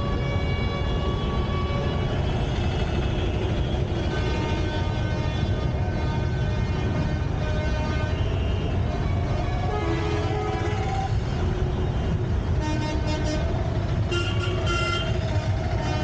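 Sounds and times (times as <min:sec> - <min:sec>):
traffic engines rumbling: 0:00.0 - 0:16.0.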